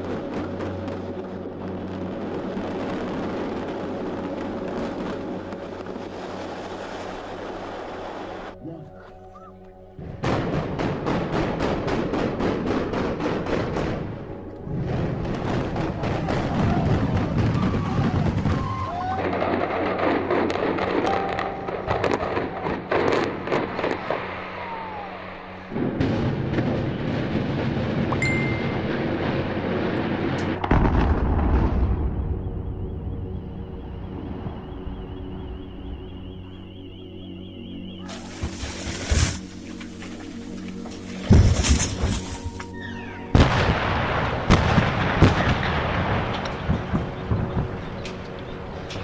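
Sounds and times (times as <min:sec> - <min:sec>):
rush of outdoor noise: 0:00.0 - 0:49.0
building collapsing cracks and bangs: 0:14.9 - 0:20.2.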